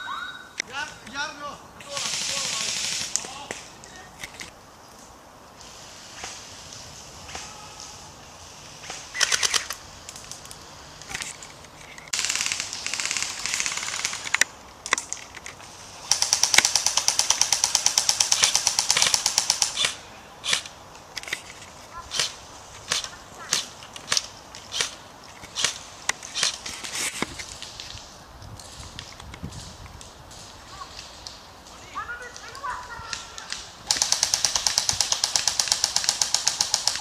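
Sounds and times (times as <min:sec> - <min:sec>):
airsoft guns firing: 0:01.8 - 0:03.7, 0:12.1 - 0:14.5, 0:16.0 - 0:20.7, 0:22.1 - 0:26.6, 0:33.2 - 0:37.0.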